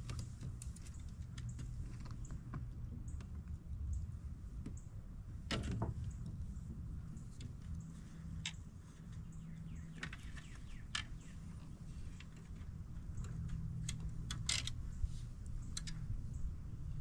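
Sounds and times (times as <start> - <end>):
low steady hum: 0.0 - 17.0
faint bird chirps: 8.9 - 12.1.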